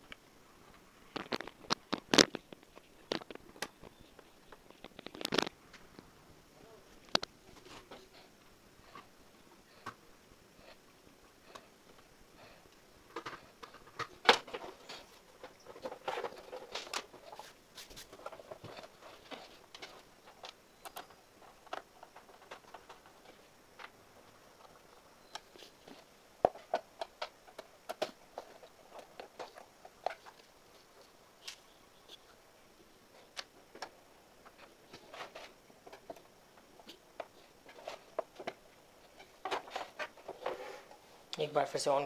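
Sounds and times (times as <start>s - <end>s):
plastic parts clicking and scraping: 1.1s - 6.1s, 11.4s - 32.4s, 33.1s - 41.1s.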